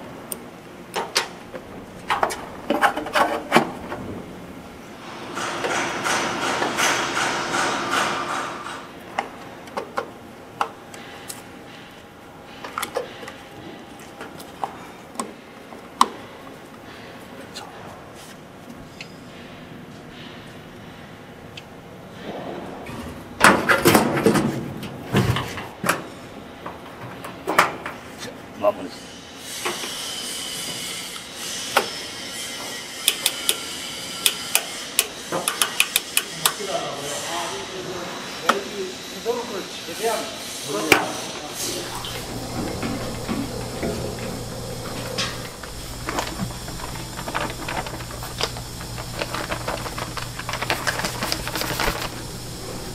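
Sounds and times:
steady background noise: 0.0s - 52.9s
screwdriver clicks and taps on metal: 33.1s - 33.6s, 35.4s - 36.6s
faint steady whine: 41.4s - 52.9s.

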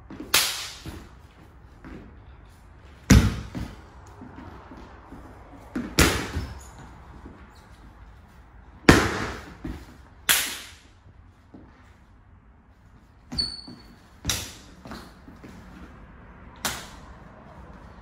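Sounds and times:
hand slaps and foot stamps: 0.1s - 1.1s, 16.6s - 17.0s
sneakers squeaking on wood: 3.1s - 8.0s, 13.2s - 15.8s.

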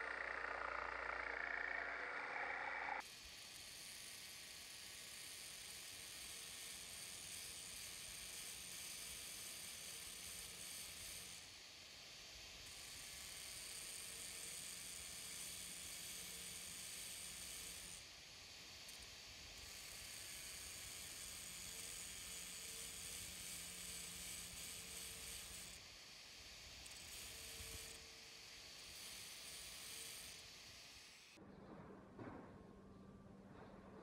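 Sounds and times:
angle grinder grinding steel: 0.0s - 3.0s, 20.1s - 25.8s, 26.8s - 31.4s.

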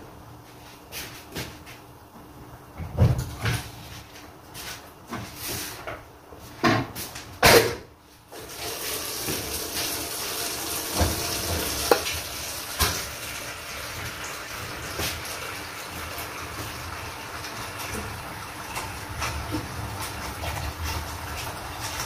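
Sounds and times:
water running from tap: 8.3s - 22.0s
knocks of pots or dishes: 10.9s - 12.1s.

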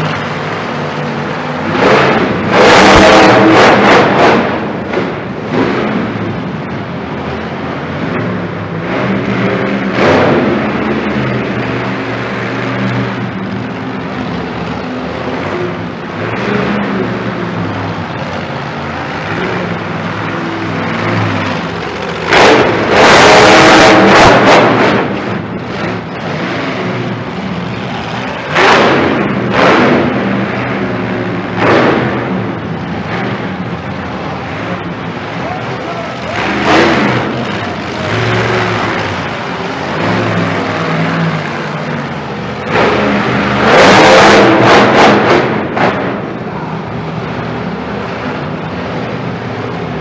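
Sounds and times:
monster truck engine revving: 0.0s - 50.0s.

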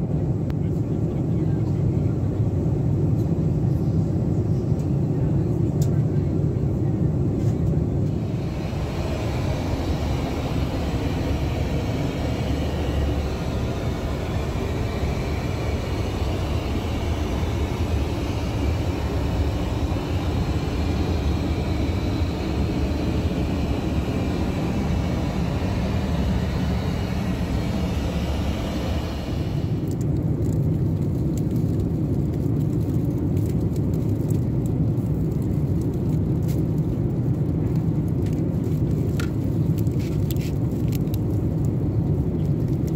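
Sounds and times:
airliner engine rumble: 0.0s - 42.9s
cabin air hiss: 8.1s - 29.9s.

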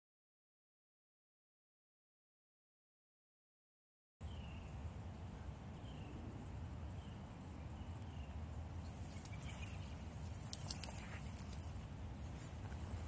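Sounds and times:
light rustle: 8.8s - 13.0s
sharp clicks: 10.2s - 11.8s.

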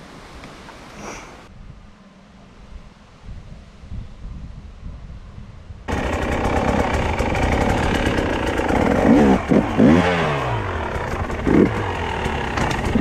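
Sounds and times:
motorcycle engine revving: 5.9s - 13.0s.

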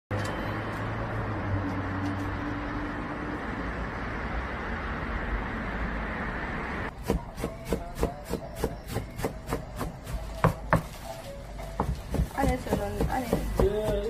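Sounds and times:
street noise: 0.1s - 14.0s
knife chopping on cutting board: 7.0s - 10.9s, 11.8s - 14.0s.

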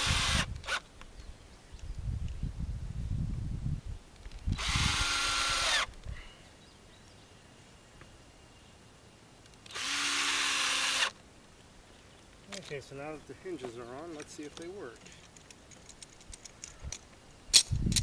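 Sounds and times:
cordless drill driving screws: 0.0s - 0.8s, 4.5s - 5.9s, 9.6s - 11.2s.

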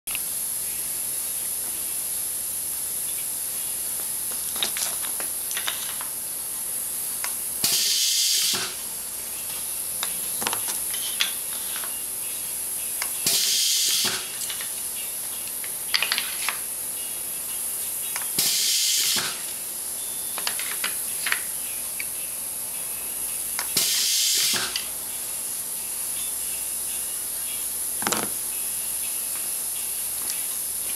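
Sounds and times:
pneumatic nailer air hiss: 7.6s - 8.8s, 13.2s - 14.4s, 18.4s - 19.5s, 23.8s - 24.8s.

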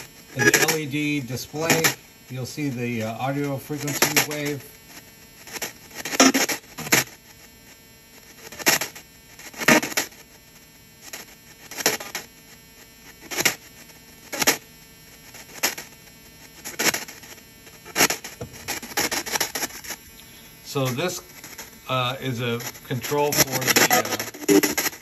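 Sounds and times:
radio static bursts: 0.0s - 25.0s.

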